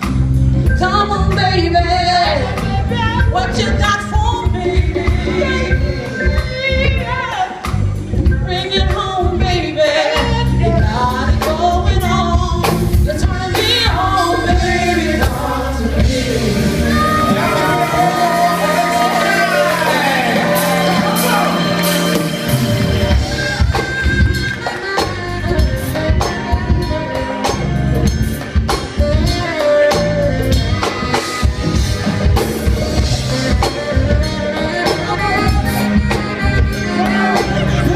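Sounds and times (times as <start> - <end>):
drum kit steady beat: 0.0 - 37.9
voices singing: 13.1 - 24.1, 35.0 - 37.9.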